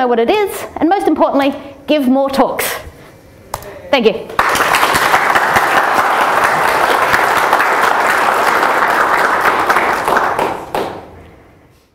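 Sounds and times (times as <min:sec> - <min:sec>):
audience applauding: 0:04.4 - 0:11.2.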